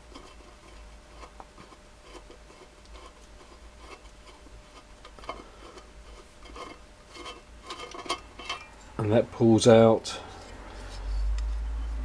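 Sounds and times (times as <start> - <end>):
screwdriver scratching and clicking: 6.1 - 8.6.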